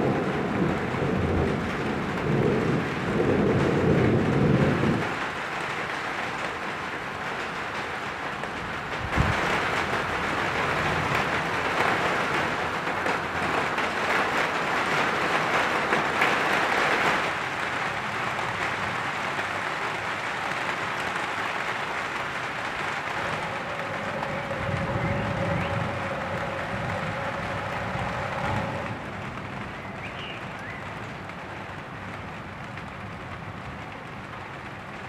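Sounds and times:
thunderclap: 0.0 - 6.0, 8.5 - 17.4, 21.9 - 30.1
steady rain falling: 0.0 - 35.0.

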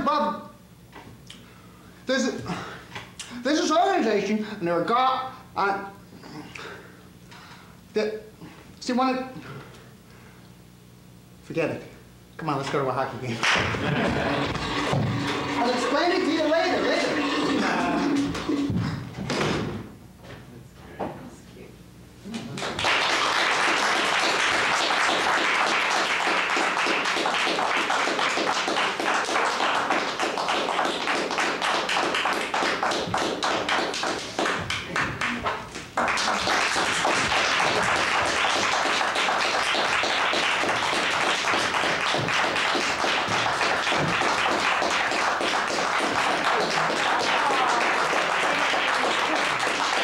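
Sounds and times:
audience applauding: 13.5 - 18.8, 22.6 - 50.0.

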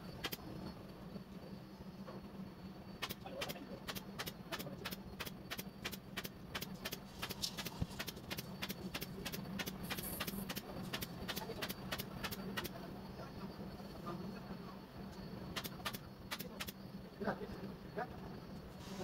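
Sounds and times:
steady low hum: 0.0 - 19.0
staple gun firing: 15.6 - 16.8.

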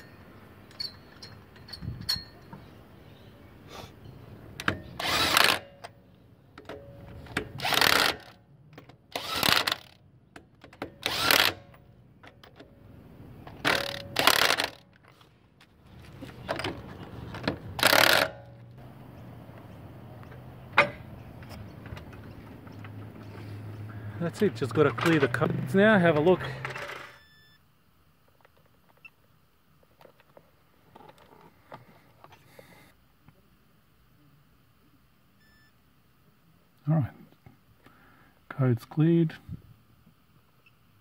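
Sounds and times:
impact wrench rattling: 7.2 - 8.4, 9.1 - 10.0, 10.6 - 12.6, 13.5 - 15.0, 16.4 - 18.6.

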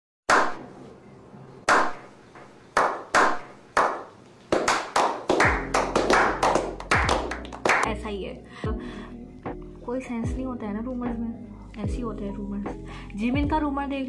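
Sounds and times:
men clapping: 2.8 - 7.9.

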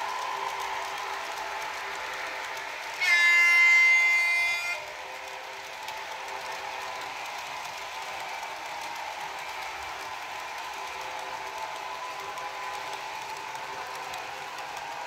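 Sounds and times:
locomotive running hum: 0.0 - 15.0
model train horn blast: 3.0 - 4.8.

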